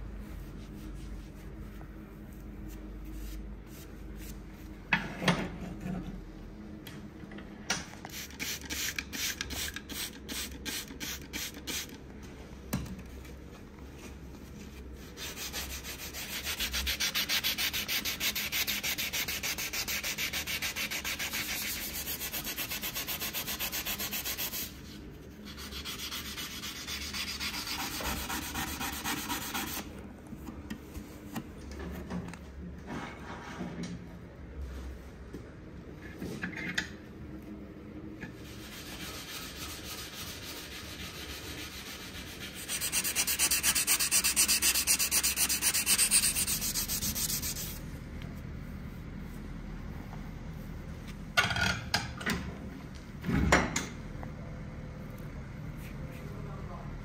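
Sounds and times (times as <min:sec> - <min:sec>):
sandpaper rubbing on metal blade: 0:15.2 - 0:24.8, 0:25.5 - 0:29.9, 0:38.6 - 0:47.8.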